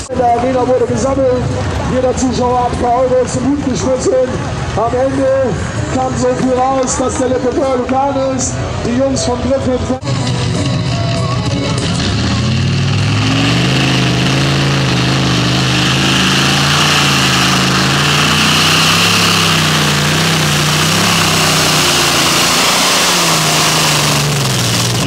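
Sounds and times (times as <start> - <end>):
tractor engine running hard: 0.0 - 25.0.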